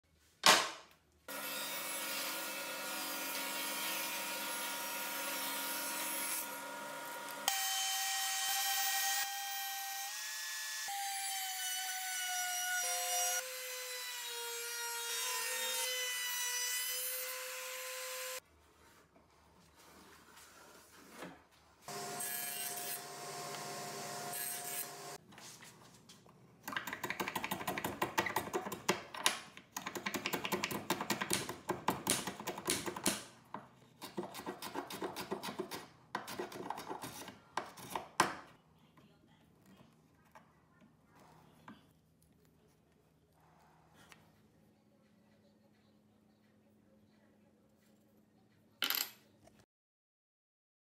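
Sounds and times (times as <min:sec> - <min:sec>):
power tools cutting wood: 0:01.3 - 0:18.4, 0:21.9 - 0:25.2.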